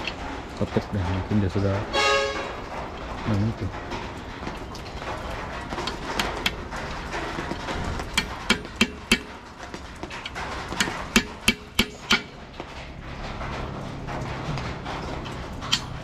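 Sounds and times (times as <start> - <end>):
hammer striking metal: 7.6 - 9.4, 10.2 - 12.4.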